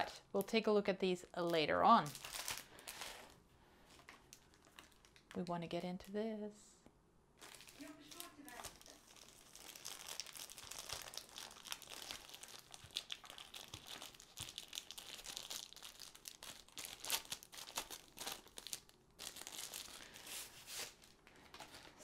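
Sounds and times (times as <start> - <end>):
plastic wrapping crinkling: 1.4 - 6.2, 7.4 - 22.0.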